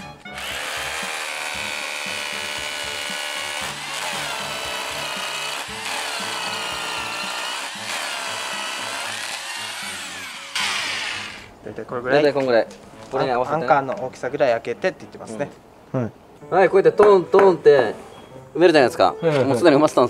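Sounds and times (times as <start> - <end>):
electric drill boring into concrete: 0.3 - 11.5.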